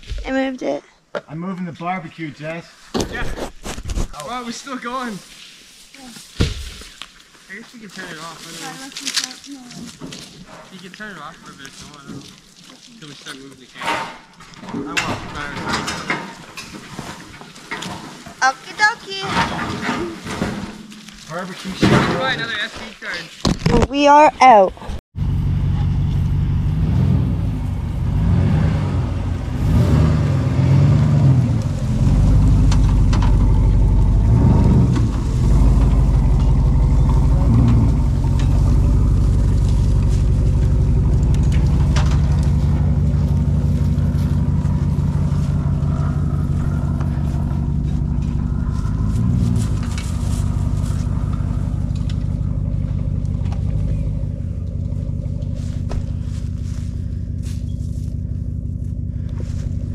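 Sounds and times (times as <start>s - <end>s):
pickup truck engine revving: 25.2s - 59.9s.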